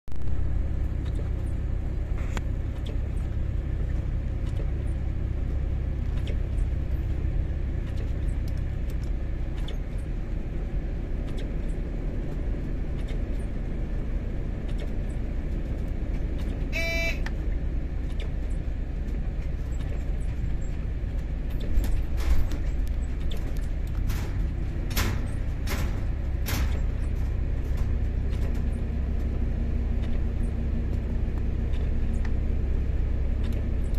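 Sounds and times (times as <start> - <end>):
rail vehicle rumbling on track: 0.1 - 33.9
brief pitched toot: 16.7 - 17.3.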